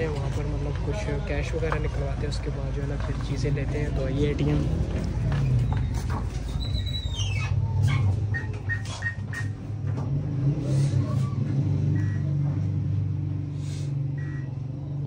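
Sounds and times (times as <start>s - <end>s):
keypad beeps: 12.0s - 12.3s.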